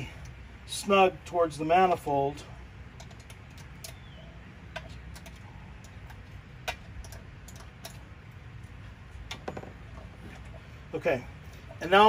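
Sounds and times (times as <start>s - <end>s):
low steady hum: 0.0s - 12.0s
small wrench clicking on metal nuts: 3.0s - 8.1s.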